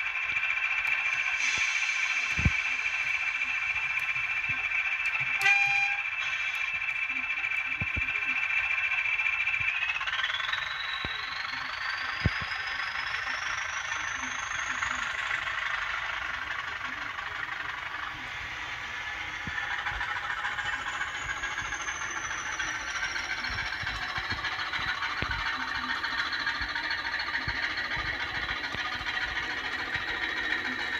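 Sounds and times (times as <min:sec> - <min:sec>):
diesel engine sound from small speaker: 0:00.0 - 0:30.9
high whistling tone: 0:00.6 - 0:30.9.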